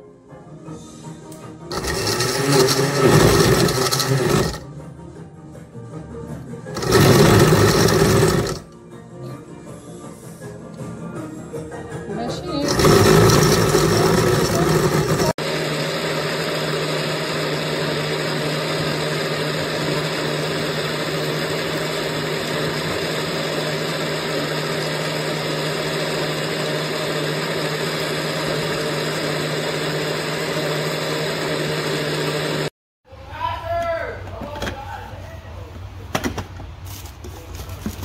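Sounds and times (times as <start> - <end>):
blender motor running: 1.7 - 4.6, 6.8 - 8.7, 12.5 - 32.8.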